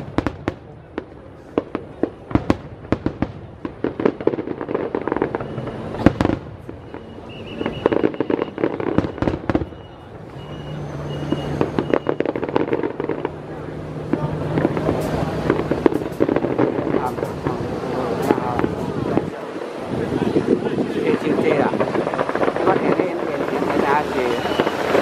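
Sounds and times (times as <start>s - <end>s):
crackling pops: 0.0s - 9.8s, 11.2s - 19.5s, 20.2s - 25.0s
firework shells bursting: 14.0s - 25.0s.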